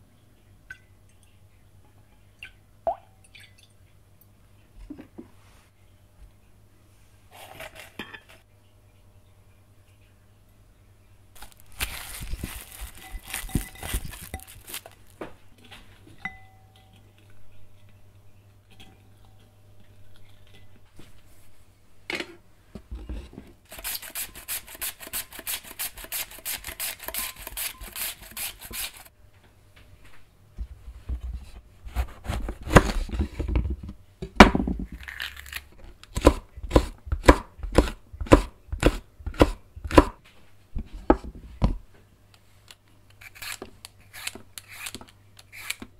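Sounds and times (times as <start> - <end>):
onion rasping on hand slicer: 23.7 - 29.1, 36.2 - 40.2
knife chopping on wooden board: 36.2 - 40.2.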